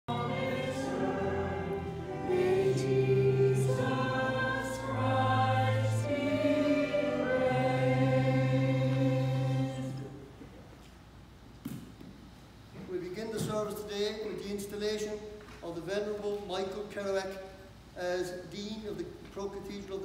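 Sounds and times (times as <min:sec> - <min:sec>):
voices singing a hymn: 0:00.0 - 0:10.3.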